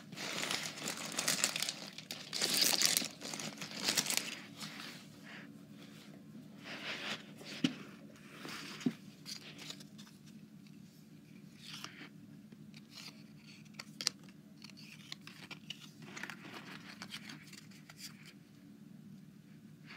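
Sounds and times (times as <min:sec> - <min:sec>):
cards rustling and sliding: 0:06.7 - 0:10.8, 0:11.5 - 0:12.1, 0:12.7 - 0:18.4.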